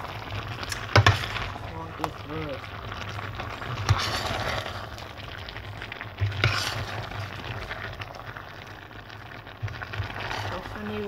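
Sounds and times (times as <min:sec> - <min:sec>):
soft sizzle: 0:00.0 - 0:11.0
metal ladle scraping a pot: 0:03.7 - 0:04.7, 0:06.2 - 0:07.6.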